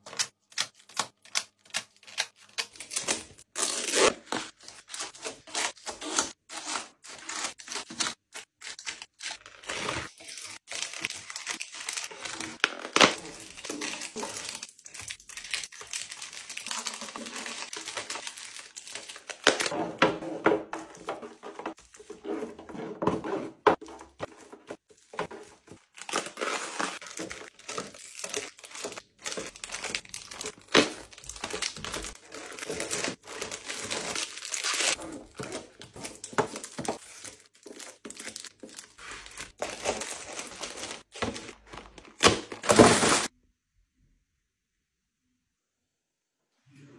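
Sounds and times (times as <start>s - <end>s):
snack wrappers crinkling: 8.5s - 19.7s, 25.3s - 42.1s.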